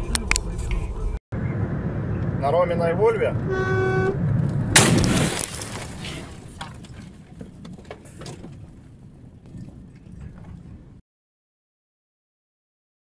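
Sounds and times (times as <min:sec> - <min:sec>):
truck rumbling: 0:00.0 - 0:11.0
loud truck crash: 0:04.2 - 0:07.2
knocks and rattles: 0:04.3 - 0:10.7.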